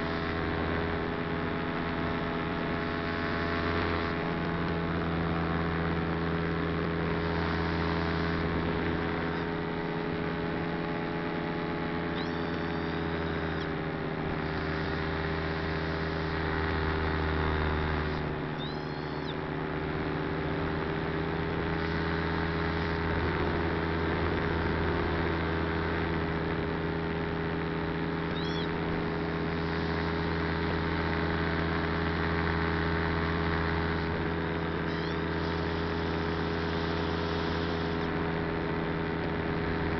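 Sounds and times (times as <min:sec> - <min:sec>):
model aircraft motor drone: 0:00.0 - 0:39.9
short high chirps: 0:18.6 - 0:19.4.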